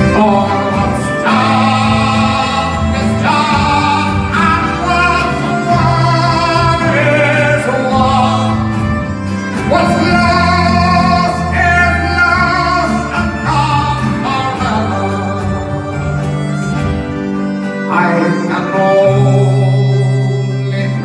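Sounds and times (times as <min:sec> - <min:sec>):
man singing: 0:00.0 - 0:16.2, 0:17.8 - 0:21.0
live folk band playing: 0:00.0 - 0:21.0.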